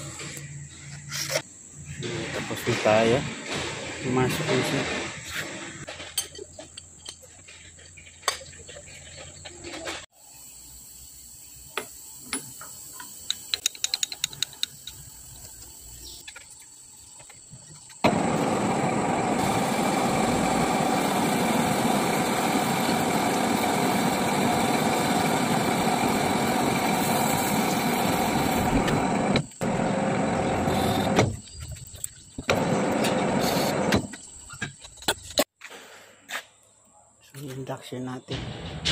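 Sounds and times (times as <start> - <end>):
sharp ticks: 13.2 - 15.7
metal lathe cutting: 18.1 - 31.2.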